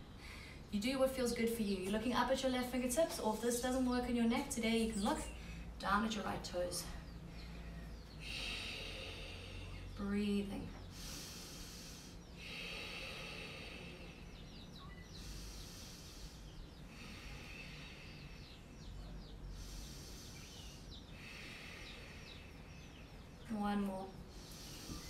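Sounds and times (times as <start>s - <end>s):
slow hissing breaths: 6.8s - 10.1s, 10.8s - 23.4s, 24.1s - 25.0s.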